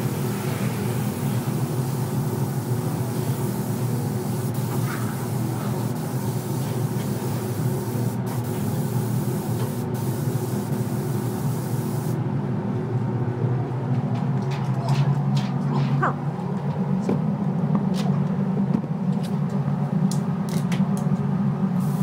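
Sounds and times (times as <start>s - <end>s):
rushing air hiss: 0.0s - 12.2s, 21.8s - 22.0s
ventilation hum: 0.0s - 22.0s.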